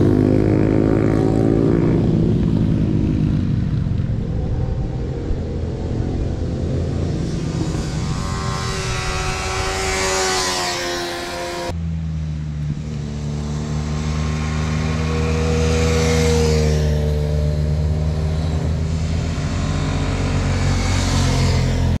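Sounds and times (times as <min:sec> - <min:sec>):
motorcycles riding past: 0:00.0 - 0:22.0.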